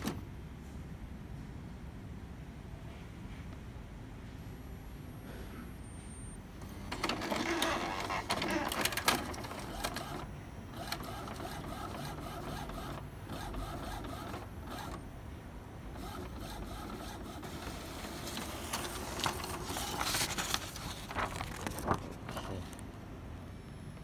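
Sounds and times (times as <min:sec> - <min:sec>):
printer whirring: 0:00.0 - 0:00.3, 0:06.5 - 0:24.0
paper swishing: 0:16.8 - 0:22.8.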